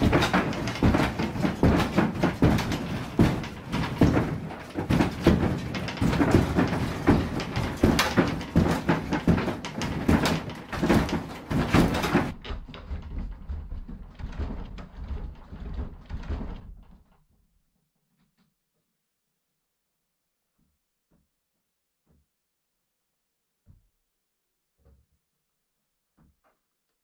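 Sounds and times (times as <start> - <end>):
footsteps on wooden floorboards: 0.0 - 17.0.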